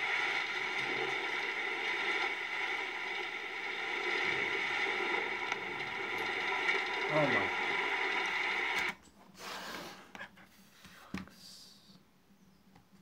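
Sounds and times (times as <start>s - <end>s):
rushing storm noise: 0.0s - 8.8s.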